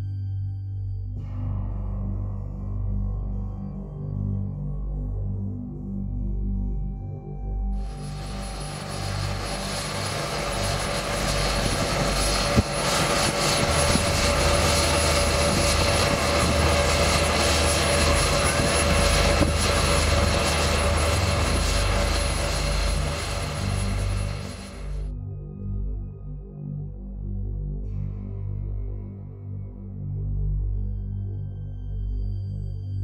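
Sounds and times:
dense rushing noise: 0:07.8 - 0:25.0
helicopter turbine whine: 0:07.8 - 0:25.1.

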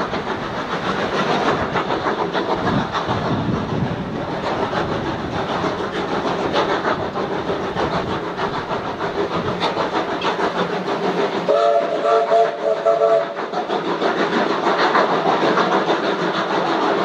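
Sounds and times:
steam hiss: 0:00.0 - 0:17.0
steam locomotive exhaust beats: 0:00.0 - 0:17.0
steam whistle: 0:11.5 - 0:13.4.

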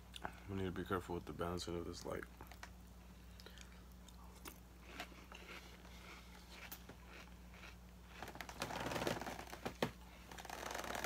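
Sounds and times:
crunchy chewing of cereal: 0:03.2 - 0:11.0.

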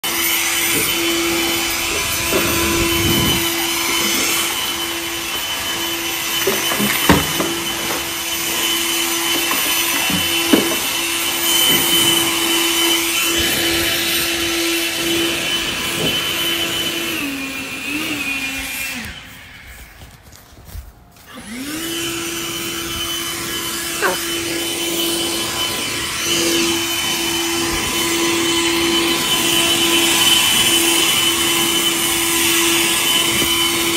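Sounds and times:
leaf blower whining: 0:00.0 - 0:33.9.

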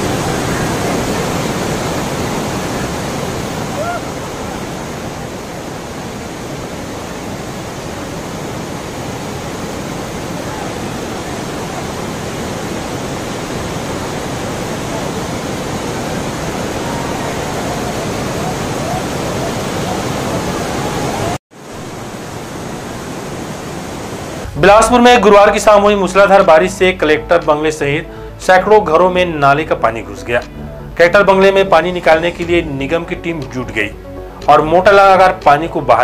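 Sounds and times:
torrential rain pouring: 0:00.0 - 0:26.2.

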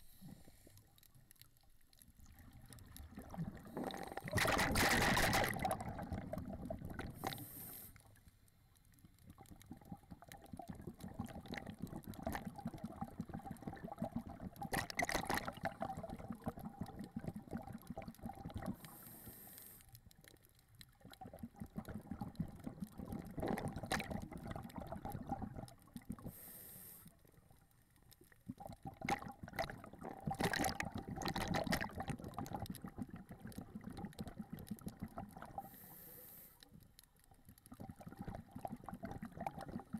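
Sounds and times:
bubbling exhalation underwater: 0:02.3 - 0:07.3, 0:09.4 - 0:18.8, 0:21.0 - 0:26.2, 0:28.5 - 0:35.6, 0:37.8 - 0:39.9
regulator inhalation hiss: 0:07.2 - 0:08.1, 0:26.3 - 0:27.1.

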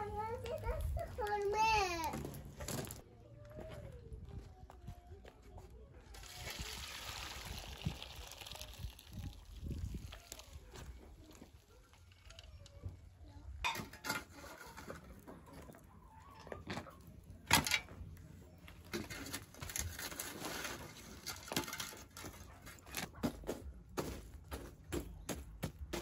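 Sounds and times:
shovel scraping through ash: 0:13.8 - 0:15.2, 0:18.9 - 0:23.2.

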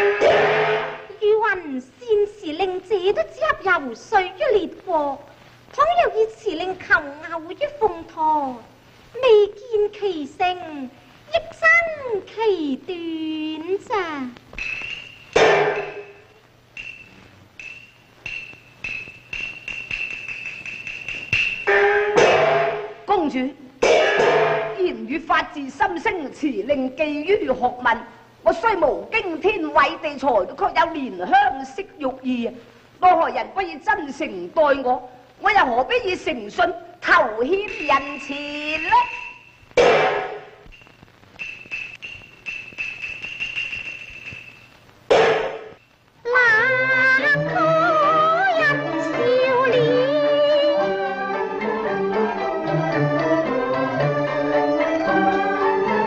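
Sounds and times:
cymbal crash: 0:00.0 - 0:01.1, 0:14.6 - 0:23.1, 0:39.0 - 0:45.8
high ringing percussion strikes: 0:00.0 - 0:01.1, 0:14.6 - 0:23.1, 0:23.8 - 0:24.8, 0:37.5 - 0:45.9
thin high tone: 0:14.6 - 0:23.1, 0:37.5 - 0:45.9.

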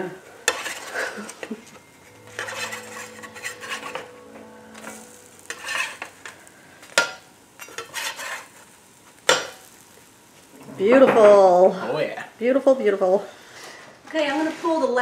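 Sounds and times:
batter sizzling: 0:00.0 - 0:15.0
metal spatula scraping griddle: 0:00.3 - 0:09.9.

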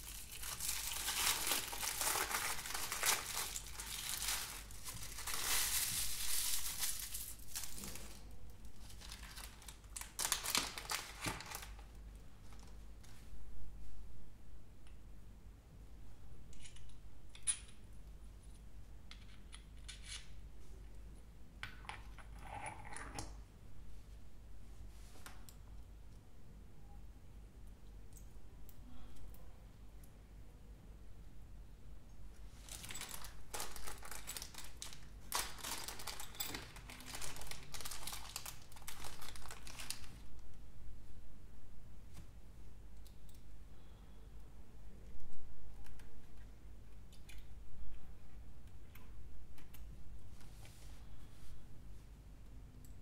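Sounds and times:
plastic bag crinkling: 0:00.0 - 0:11.9, 0:32.6 - 0:40.3.

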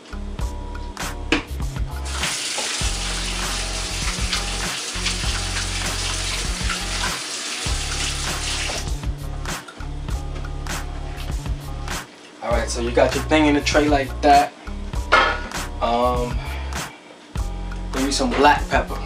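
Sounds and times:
background music with bass: 0:00.0 - 0:02.2, 0:02.8 - 0:19.0
tap water running: 0:02.0 - 0:09.1.

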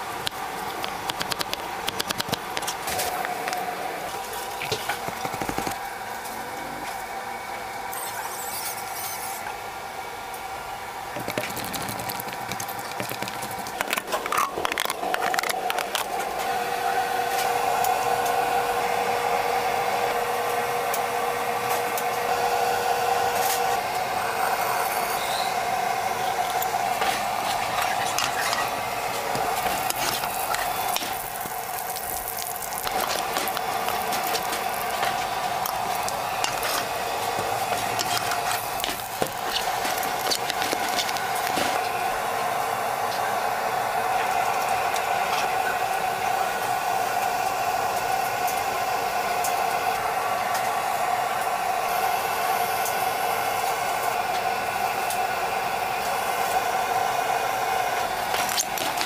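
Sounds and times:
machine hum: 0:00.0 - 0:59.0
utensils scraping and rattling: 0:07.9 - 0:09.5, 0:11.2 - 0:16.3, 0:26.4 - 0:41.9.

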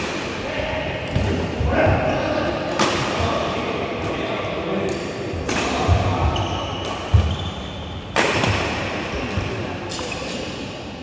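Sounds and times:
rackets hitting shuttlecock: 0:02.7 - 0:03.3, 0:04.9 - 0:07.5, 0:08.1 - 0:10.5.

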